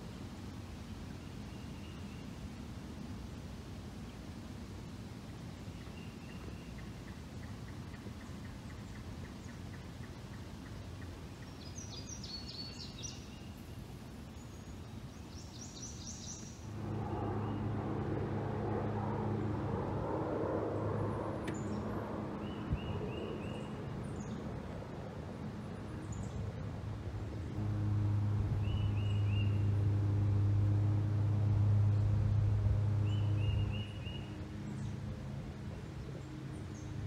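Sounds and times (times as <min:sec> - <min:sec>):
low-flying aircraft drone: 0:00.0 - 0:37.0
river ambience: 0:00.0 - 0:37.0
birds chirping: 0:28.1 - 0:30.4.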